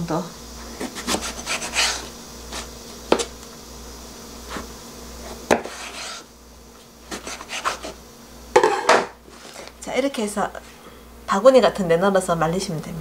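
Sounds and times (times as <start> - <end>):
knife slicing on wooden board: 0.8 - 3.3, 5.3 - 6.3, 7.1 - 8.0.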